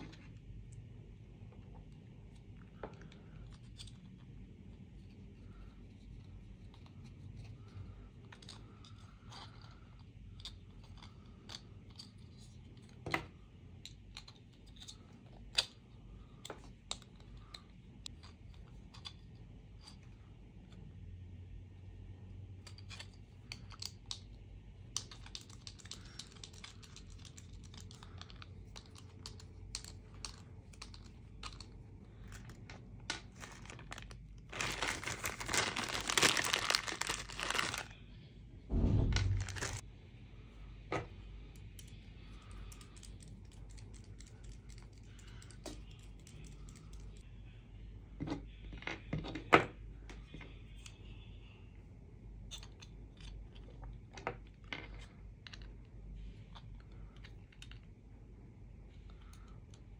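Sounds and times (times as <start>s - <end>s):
plastic bag rustling: 33.2s - 37.9s, 39.0s - 39.8s
dull thump: 38.7s - 39.8s.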